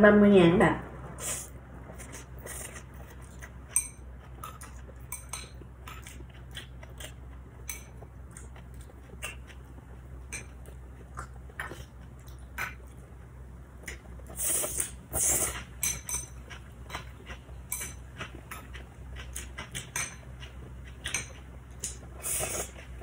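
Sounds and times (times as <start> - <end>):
low steady hum: 0.0 - 23.0
chopsticks clinking on bowl: 3.7 - 6.2.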